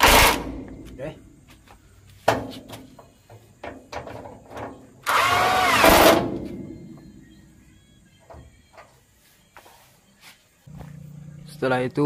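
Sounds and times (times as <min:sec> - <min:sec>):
impact wrench burst: 0:00.0 - 0:00.6, 0:05.0 - 0:06.4.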